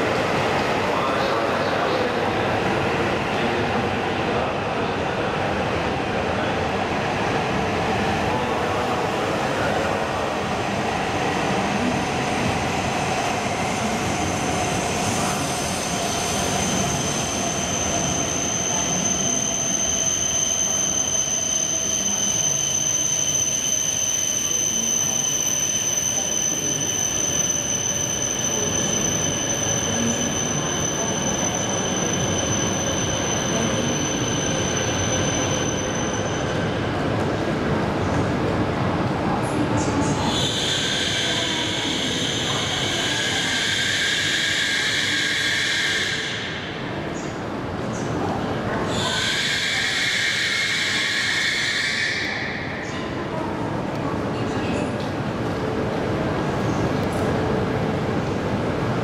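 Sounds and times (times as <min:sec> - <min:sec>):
train rumble and hiss: 0:26.0 - 0:59.0.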